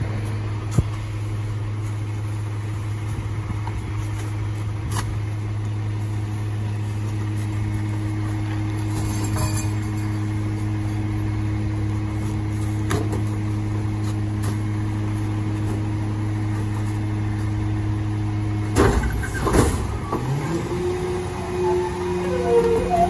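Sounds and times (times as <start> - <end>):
garbage truck diesel engine: 0.0 - 23.0
loud clunks: 18.8 - 20.3.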